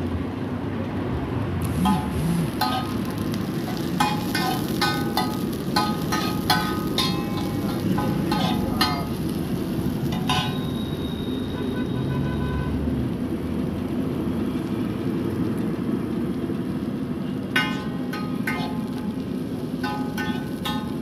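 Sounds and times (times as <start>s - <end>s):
constant low rumble: 1.6s - 10.8s, 15.5s - 21.0s
vegetables sizzling in oil: 1.6s - 12.1s, 12.8s - 21.0s.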